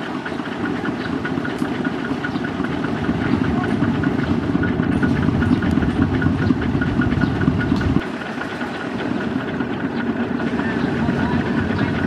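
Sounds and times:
fast regular clatter: 0.0s - 12.0s
tractor diesel engine running: 0.0s - 12.0s.

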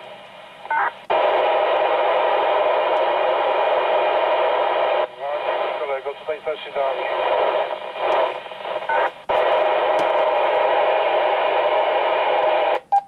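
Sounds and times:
radio static: 0.7s - 12.8s
radio switch click: 8.0s - 10.2s.

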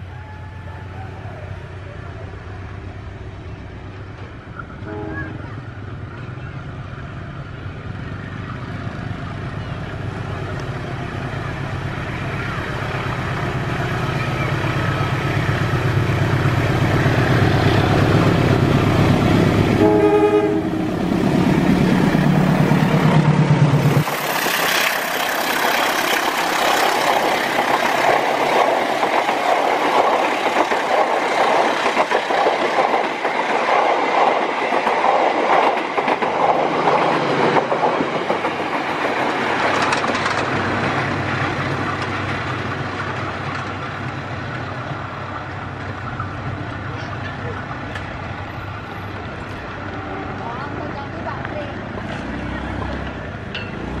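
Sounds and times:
locomotive engine drone: 0.0s - 33.7s
train horn blast: 4.8s - 5.5s, 19.8s - 20.9s
train wheels clattering on rails: 23.0s - 44.8s, 51.3s - 54.0s.

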